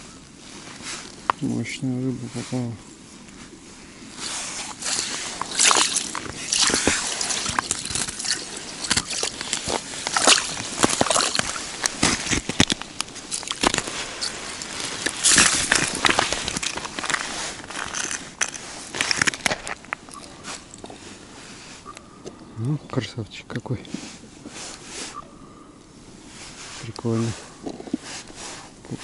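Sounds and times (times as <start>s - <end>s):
ice crystals crackling: 0.0s - 21.3s
fish splashing in slushy water: 4.1s - 19.6s.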